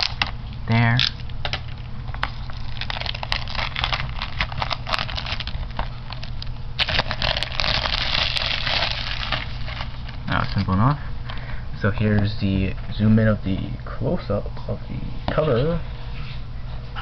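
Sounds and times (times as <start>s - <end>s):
shrink wrap crinkling: 0.0s - 11.5s.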